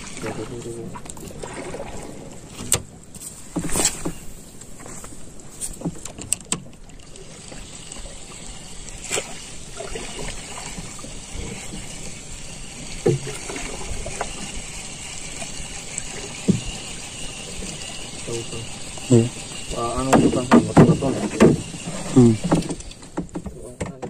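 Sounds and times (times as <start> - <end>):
water lapping against canoe hull: 0.0 - 24.0
fishing reel winding: 6.8 - 23.1
soft knocks on boat: 20.1 - 21.7, 22.5 - 24.0.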